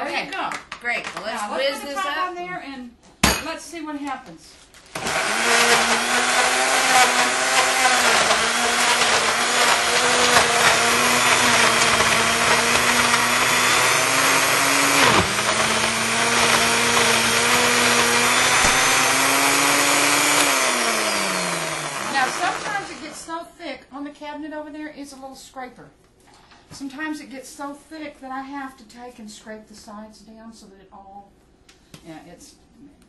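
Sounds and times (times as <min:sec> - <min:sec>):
blender running: 0:04.9 - 0:23.3.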